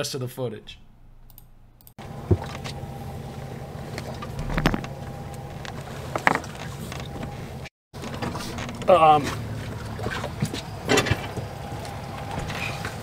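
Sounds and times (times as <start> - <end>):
boat engine humming: 1.6 - 13.0
brief knocks and clicks: 4.4 - 4.9.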